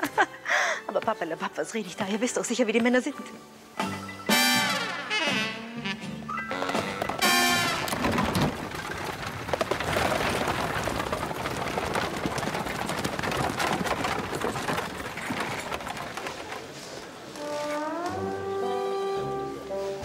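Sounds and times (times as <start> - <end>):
hooves and wheels on gravel: 6.5 - 18.6.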